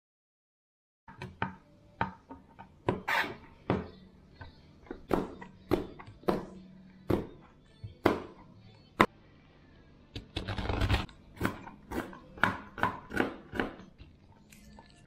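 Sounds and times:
knife chopping on cutting board: 0:05.0 - 0:07.4, 0:10.8 - 0:13.9.

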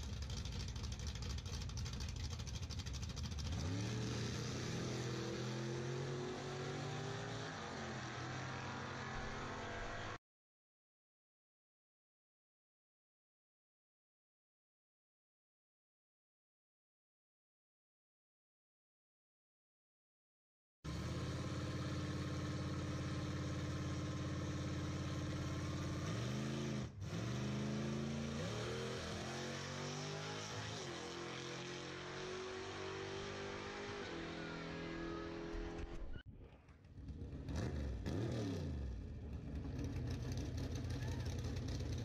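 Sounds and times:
engine revving and accelerating: 0:03.2 - 0:10.2, 0:20.9 - 0:36.2, 0:37.0 - 0:42.0.

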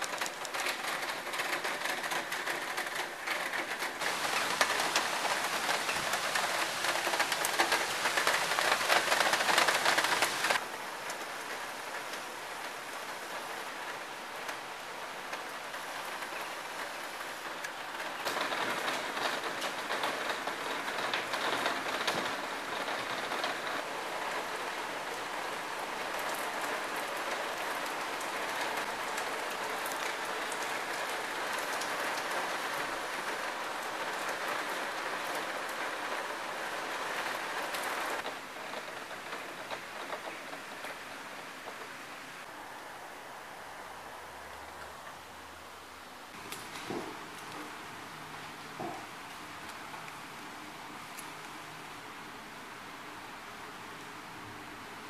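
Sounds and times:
heavy rain falling: 0:00.0 - 0:55.0.

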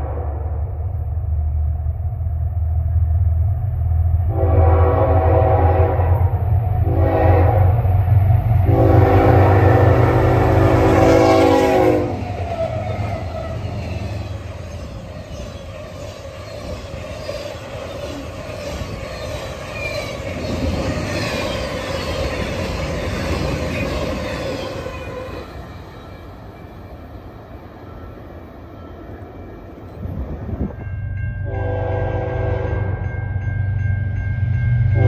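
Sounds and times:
train wheels rumbling on rails: 0:00.0 - 0:35.0
train horn chord: 0:04.3 - 0:07.8, 0:08.6 - 0:12.2, 0:31.4 - 0:33.2.

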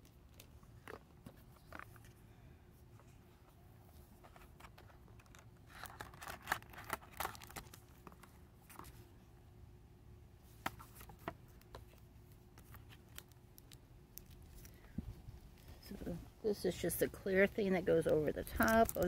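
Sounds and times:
cardboard and plastic sleeves rustling: 0:00.0 - 0:09.3, 0:10.4 - 0:19.0.

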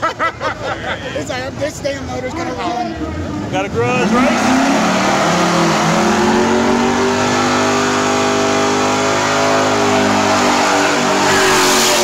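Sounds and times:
drag car engine at high revs: 0:01.5 - 0:12.0
tires spinning in a burnout: 0:03.0 - 0:12.0.

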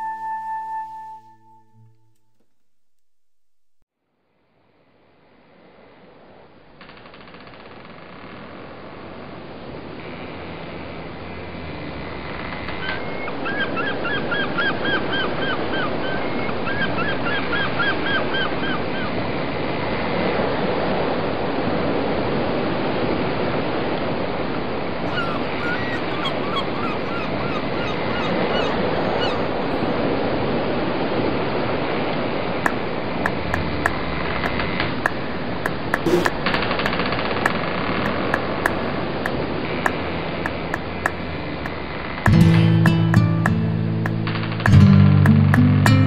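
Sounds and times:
water and wind rushing past boat: 0:13.3 - 0:42.2
short squeaky calls: 0:25.0 - 0:30.0.

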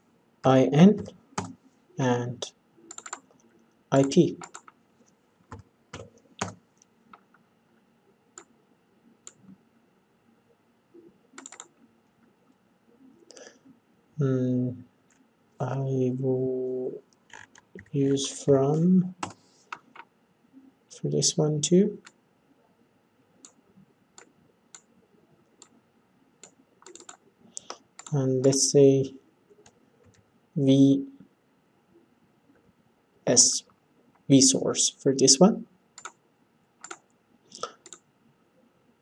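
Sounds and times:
computer mouse clicks: 0:02.9 - 0:04.8, 0:11.4 - 0:11.8, 0:26.4 - 0:28.2, 0:36.0 - 0:36.2, 0:36.8 - 0:38.0
faint mouse clicks: 0:36.8 - 0:38.0.

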